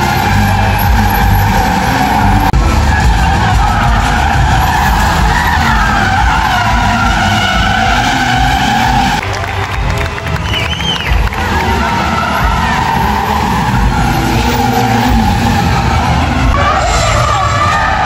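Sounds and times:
tyres squealing: 0:00.0 - 0:09.2
car engines rumbling: 0:00.0 - 0:18.0.

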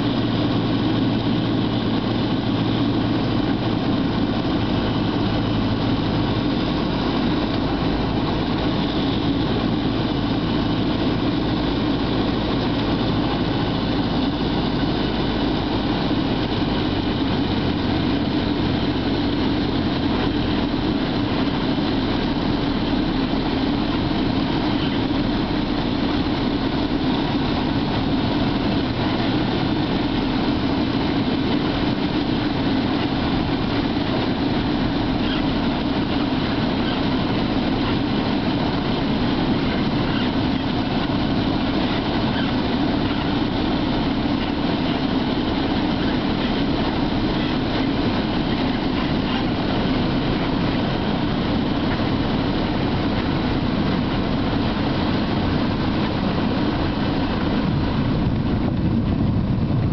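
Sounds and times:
light aircraft engine and propeller: 0:00.0 - 0:59.9.

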